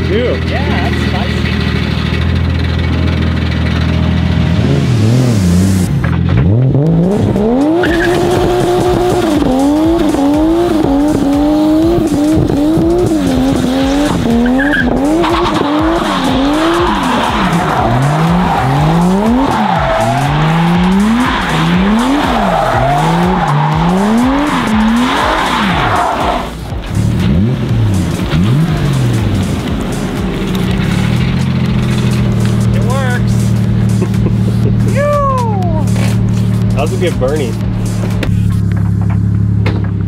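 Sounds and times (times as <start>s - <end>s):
car engine revving hard: 0.0s - 34.9s
tyres squealing: 7.5s - 10.3s, 13.6s - 26.6s.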